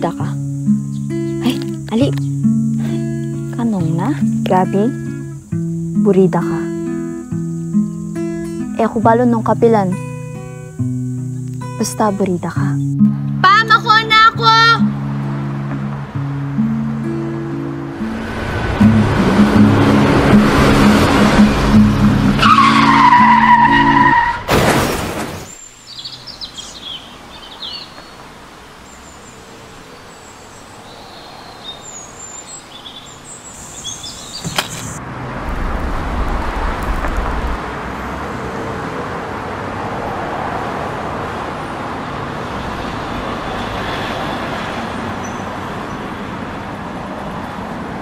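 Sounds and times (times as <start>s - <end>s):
birds chirping: 0.0s - 5.6s, 25.5s - 35.0s
film score music: 0.0s - 24.1s
tyre screech: 22.4s - 24.5s.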